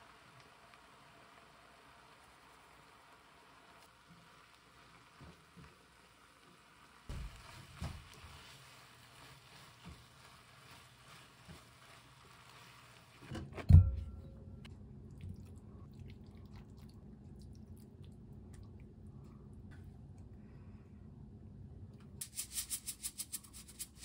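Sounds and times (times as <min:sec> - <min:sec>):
vegetables sizzling in a wok: 0:00.0 - 0:13.3
spatula stirring and tapping: 0:07.1 - 0:13.3.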